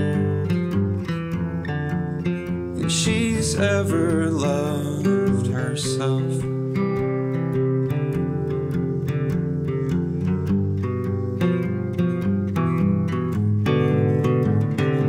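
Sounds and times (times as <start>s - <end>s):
acoustic guitar strumming: 0.0s - 15.0s
man singing: 2.8s - 6.8s.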